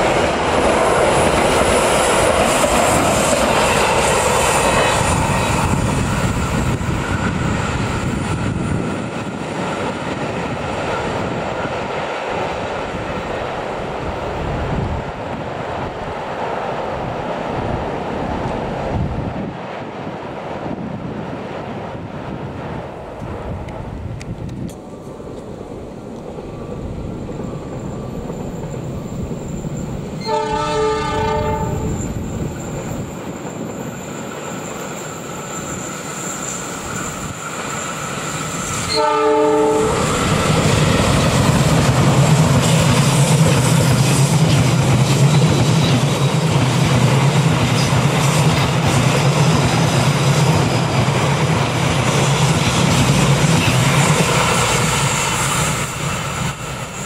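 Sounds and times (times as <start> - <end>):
train wheels rolling on rails: 0.0 - 57.0
train horn: 30.2 - 32.1, 38.8 - 40.2.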